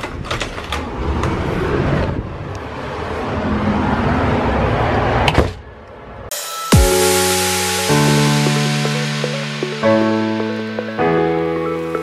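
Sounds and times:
front door opening and shutting: 0.0s - 1.8s
music with falling sweep: 6.3s - 12.0s.

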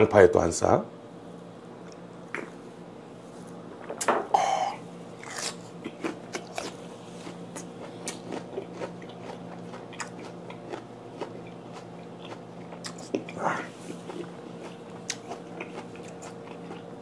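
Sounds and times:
chewing crunchy food: 5.1s - 17.0s.

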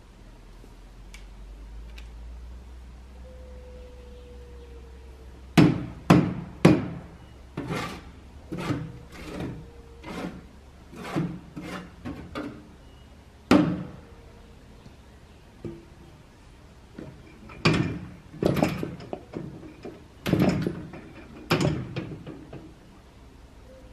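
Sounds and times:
tool knocking on dump cart: 5.6s - 7.0s.

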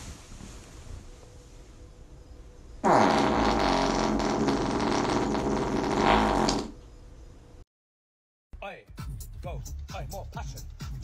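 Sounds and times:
dog farting: 2.8s - 6.8s.

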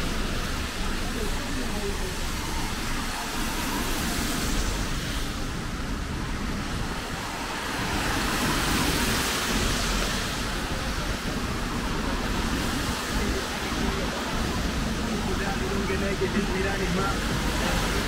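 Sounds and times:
rain hissing: 0.0s - 18.0s
traffic on wet road: 0.0s - 18.0s.

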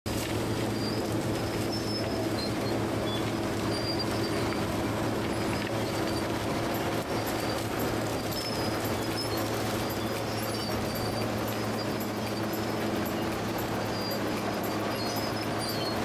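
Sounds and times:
bulldozer diesel engine droning: 0.1s - 16.0s
short high squeaks: 0.6s - 16.0s.

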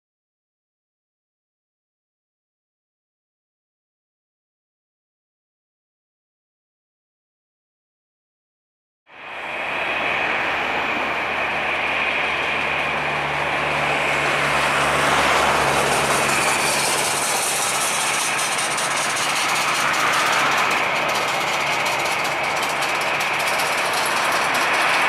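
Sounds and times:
jet engine whine and rush: 9.1s - 25.0s.

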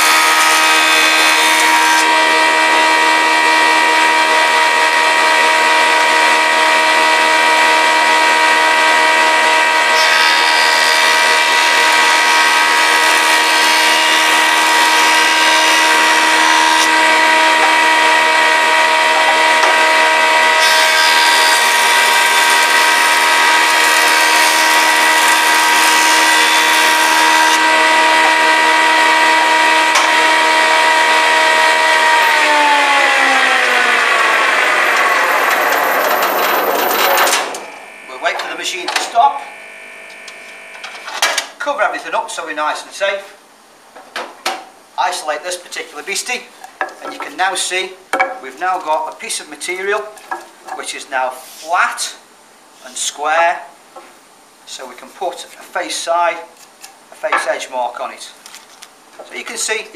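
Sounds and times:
planer whining: 0.0s - 41.5s
board being planed hissing: 4.4s - 41.1s, 50.9s - 51.8s.

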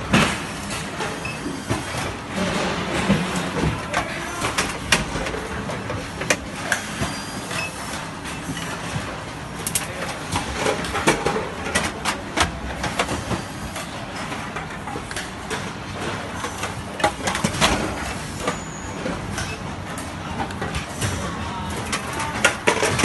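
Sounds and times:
clicks and knocks of handled objects: 8.4s - 18.6s.

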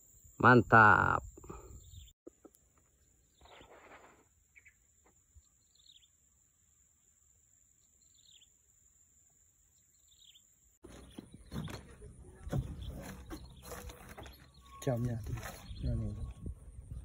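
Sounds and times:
bird chirping: 1.2s - 8.7s, 9.6s - 17.0s
rustling and handling noise: 10.8s - 15.9s.

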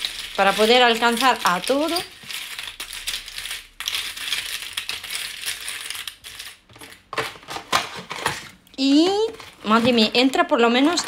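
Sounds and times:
coffee capsules clattering: 0.0s - 7.3s.

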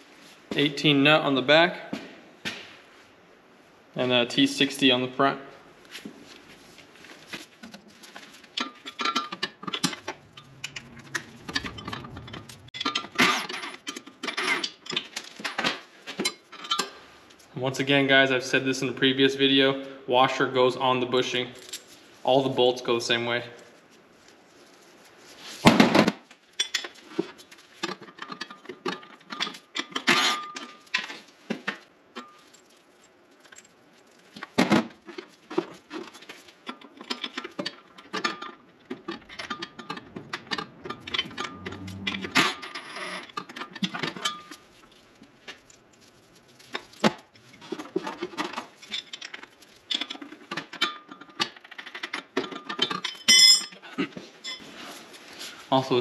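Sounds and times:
metal tools clinking: 8.6s - 15.1s, 45.6s - 53.8s, 54.4s - 54.6s.

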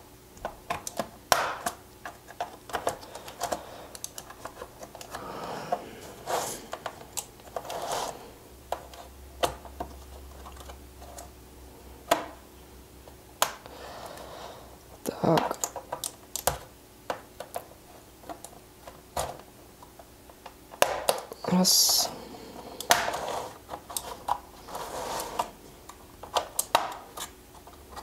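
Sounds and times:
plastic clips clicking and snapping: 0.4s - 5.2s.

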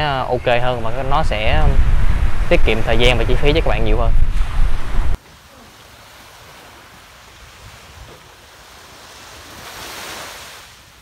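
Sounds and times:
surf waves on a beach: 4.3s - 11.0s.

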